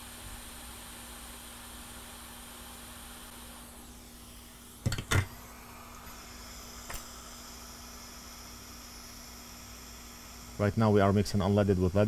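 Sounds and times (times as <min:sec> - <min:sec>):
steady equipment hiss: 0:00.0 - 0:12.0
thin high whine: 0:02.8 - 0:12.0.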